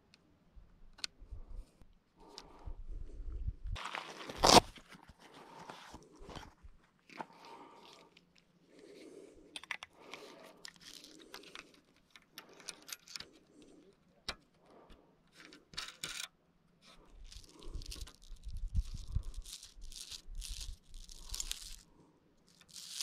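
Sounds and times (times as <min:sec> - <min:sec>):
fishing line rustling: 0:15.4 - 0:23.0.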